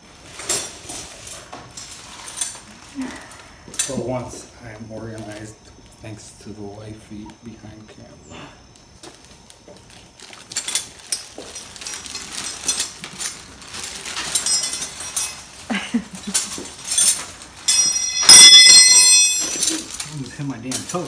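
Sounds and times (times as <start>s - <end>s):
metal hand tools clattering: 10.6s - 15.6s, 16.3s - 21.0s
loud metallic clang: 17.7s - 19.7s.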